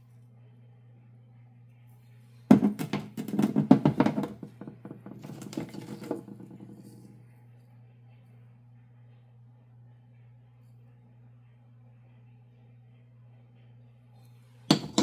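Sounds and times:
steady low hum: 0.0 - 15.0
stone slabs knocking on metal grate: 2.5 - 7.0, 14.7 - 15.0.

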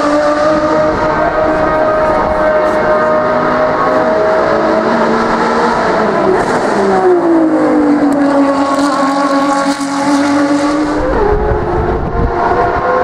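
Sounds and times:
race car passing at speed: 0.0 - 13.0.

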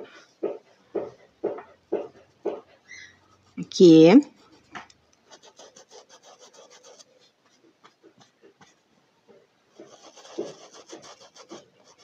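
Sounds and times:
paintbrush scrubbing cloth: 3.2 - 8.9, 9.8 - 12.0.

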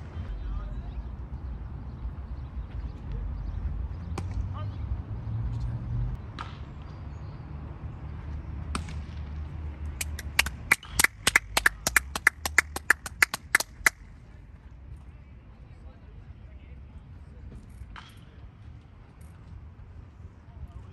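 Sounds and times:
hands clapping: 9.9 - 14.0.

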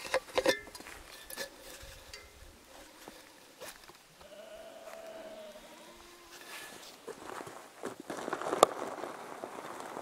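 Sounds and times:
sheep bleating: 2.7 - 3.4, 4.2 - 6.6.

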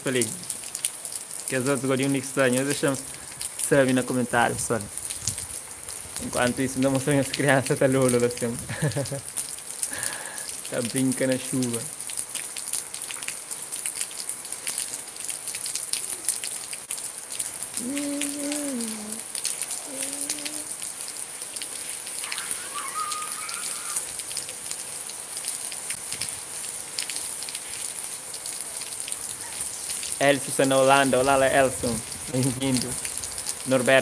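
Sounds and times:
steady rain on roofs: 0.0 - 34.0
faint distant calls: 21.8 - 24.4.

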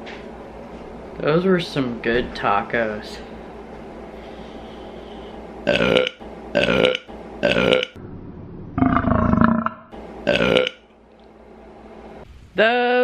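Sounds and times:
woman burping loudly: 8.8 - 10.7.

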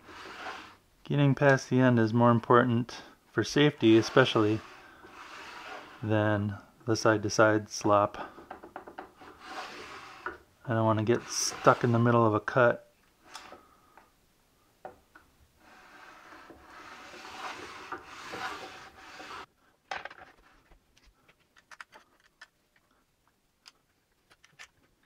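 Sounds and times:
saw sled scraping on metal table: 0.0 - 0.8, 3.4 - 6.4, 9.2 - 12.4, 15.6 - 19.5.

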